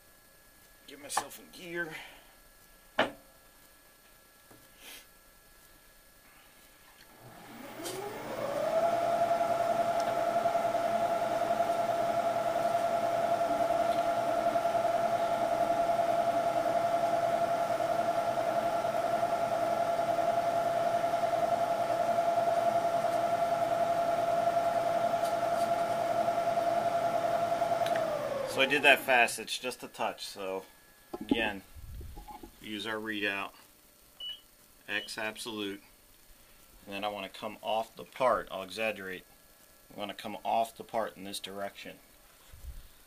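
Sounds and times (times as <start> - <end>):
milling machine spindle whine: 7.1 - 29.5.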